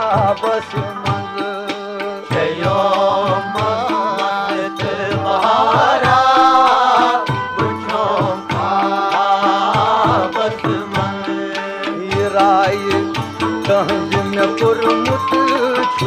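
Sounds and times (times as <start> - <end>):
folk melody: 0.0 - 16.0
hand drum rhythm: 0.0 - 16.0.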